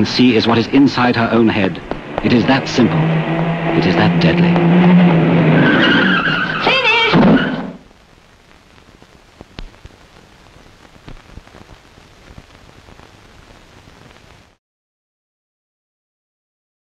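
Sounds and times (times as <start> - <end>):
faint hiss with crackles: 0.0 - 2.9, 6.2 - 14.6
car tyres screeching: 0.4 - 7.8.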